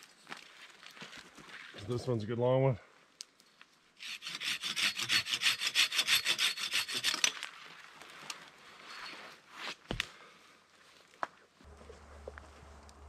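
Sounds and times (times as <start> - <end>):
hand saw cutting branch: 4.0 - 7.4.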